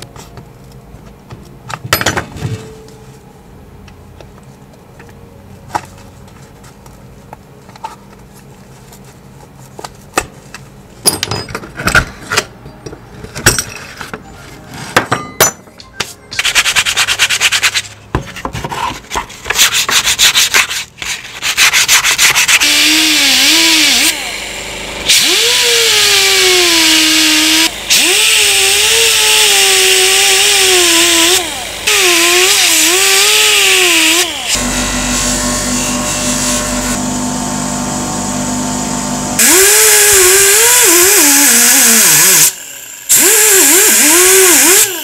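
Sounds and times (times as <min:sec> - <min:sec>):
metal parts clicking and knocking: 0:11.0 - 0:14.3
sandpaper rubbing metal: 0:16.4 - 0:18.0, 0:18.8 - 0:23.0
power tool whine: 0:22.6 - 0:45.0.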